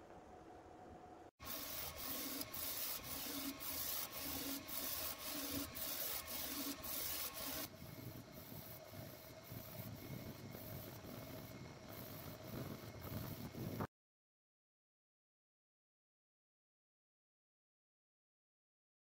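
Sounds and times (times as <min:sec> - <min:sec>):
printer motors and fans whirring: 0:01.4 - 0:13.9
pulsing hiss: 0:01.4 - 0:13.9.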